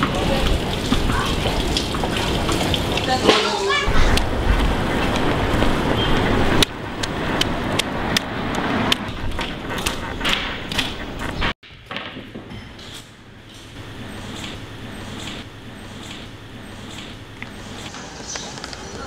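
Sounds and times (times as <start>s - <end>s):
passing traffic: 4.8s - 9.8s.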